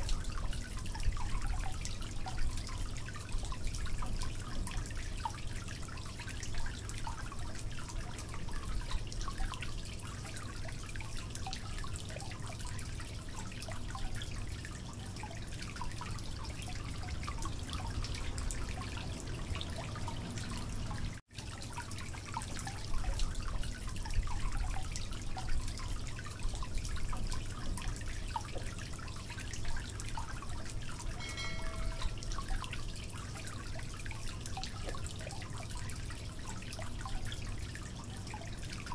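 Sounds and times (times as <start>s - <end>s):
short electronic chime: 31.2s - 32.4s.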